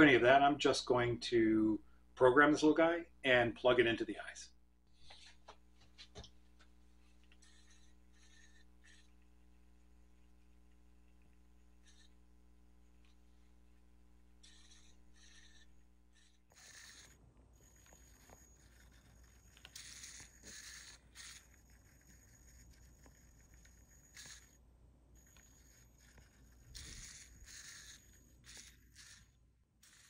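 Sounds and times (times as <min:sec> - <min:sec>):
faint high whine: 0:06.2 - 0:30.0
servos whirring: 0:07.1 - 0:24.6, 0:25.2 - 0:30.0.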